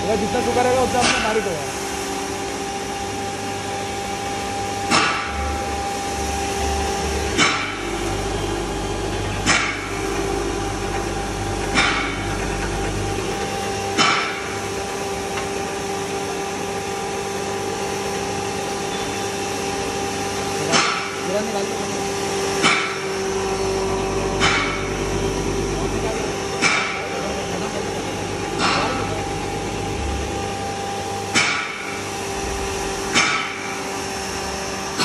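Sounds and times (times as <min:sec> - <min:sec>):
sharp knocks: 0:07.3 - 0:07.9, 0:10.8 - 0:15.5, 0:24.3 - 0:25.1, 0:31.3 - 0:32.0, 0:32.6 - 0:33.9.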